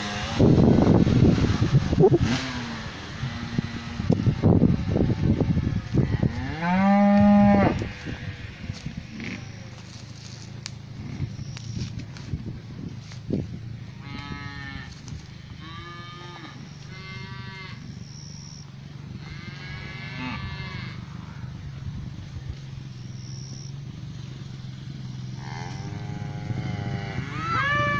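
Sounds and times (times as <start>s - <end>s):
steady low hum: 0.0s - 27.5s
cattle mooing: 5.9s - 8.2s, 14.0s - 17.9s, 19.2s - 21.5s, 25.3s - 27.9s.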